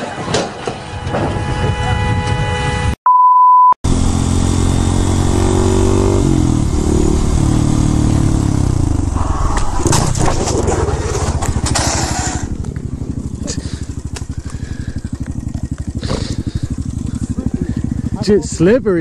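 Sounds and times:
short beep: 1.0s - 3.8s
motorcycle engine running: 3.8s - 19.0s.

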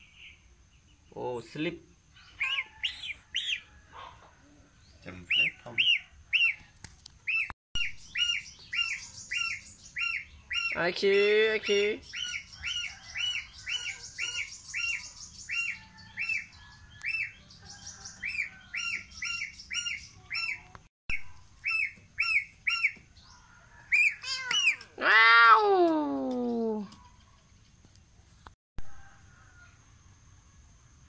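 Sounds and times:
gosling peeping: 2.2s - 3.7s, 5.1s - 17.4s, 18.1s - 23.0s.

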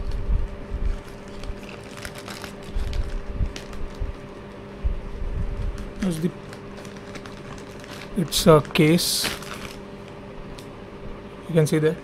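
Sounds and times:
faint steady hum: 0.0s - 12.0s
paper and plastic rustling: 0.8s - 4.6s, 5.5s - 10.2s.

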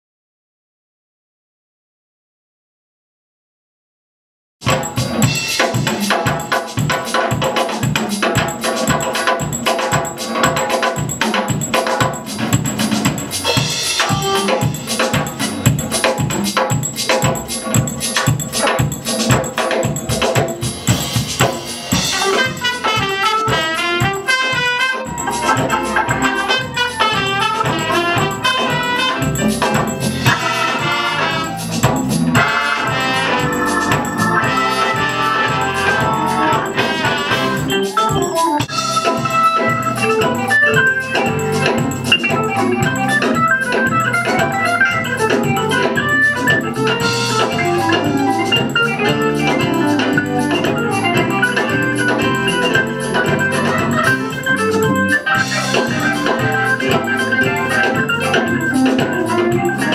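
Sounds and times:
bass guitar: 4.6s - 59.9s
steady drum beat: 4.6s - 59.9s
organ: 4.7s - 59.9s
trumpets: 13.5s - 15.2s, 21.9s - 38.0s, 47.0s - 59.9s.

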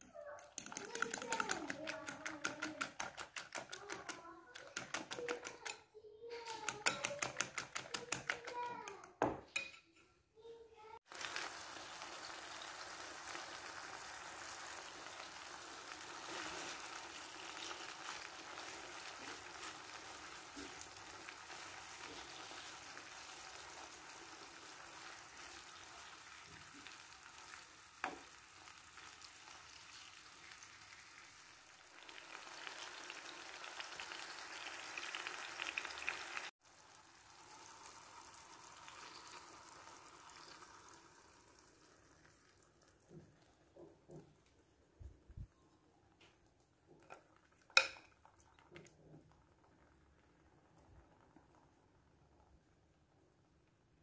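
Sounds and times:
fork beating eggs in glass bowl: 0.0s - 9.8s
tomato slices sizzling in oil: 11.0s - 43.8s.

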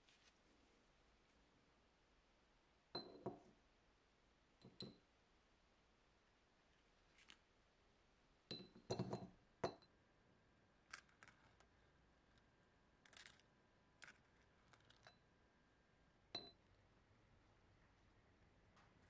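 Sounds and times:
metal clinking on glass: 8.5s - 9.8s, 16.4s - 16.6s.

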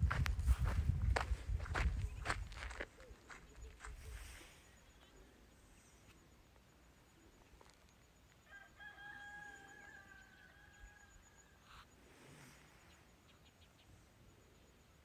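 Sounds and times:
faint rooster crowing: 8.4s - 12.0s.

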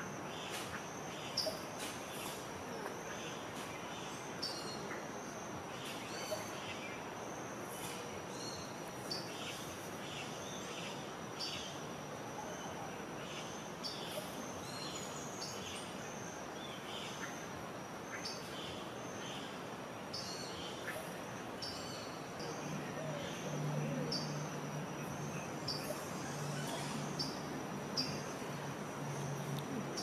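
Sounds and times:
background hiss: 0.0s - 30.0s
birds chirping: 20.1s - 30.0s.

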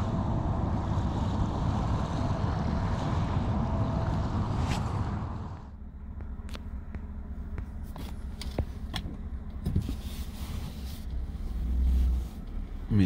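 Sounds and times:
car cabin low rumble: 0.0s - 13.0s.

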